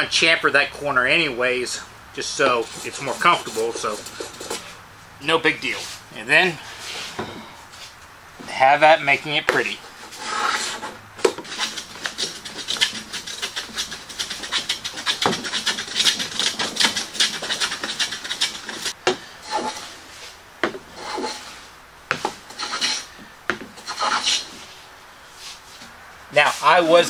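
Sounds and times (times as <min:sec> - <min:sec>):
hand plane shaving wood: 0:02.2 - 0:04.7, 0:09.8 - 0:20.0, 0:21.0 - 0:23.1, 0:23.8 - 0:24.6.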